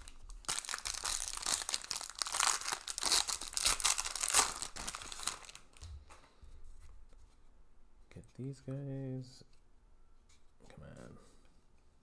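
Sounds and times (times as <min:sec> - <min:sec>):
foil wrapper crinkling and tearing: 0:00.0 - 0:05.9.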